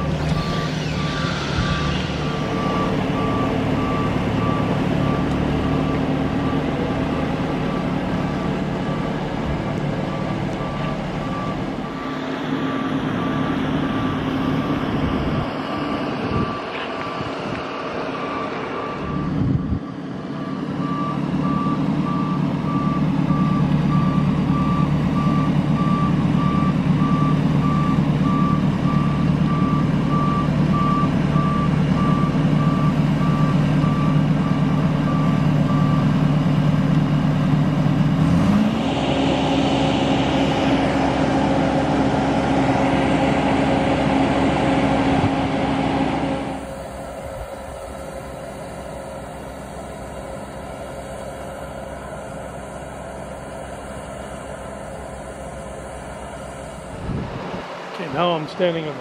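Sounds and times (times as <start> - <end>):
warning beeper beeping: 0.0 - 9.3
lift engine running: 0.0 - 59.0.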